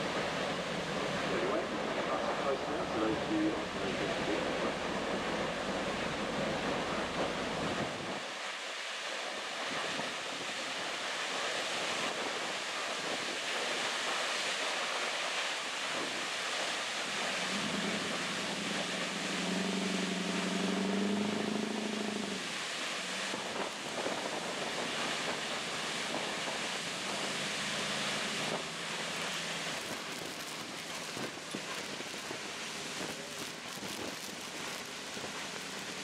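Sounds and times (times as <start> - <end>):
boat engine hum: 0.0 - 8.6, 15.7 - 36.0
waterfall rushing: 0.0 - 36.0
spray against boat: 11.4 - 36.0.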